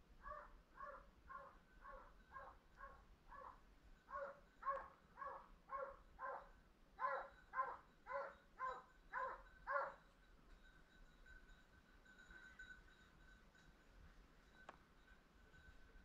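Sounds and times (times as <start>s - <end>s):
distant hounds barking: 0.2s - 10.0s.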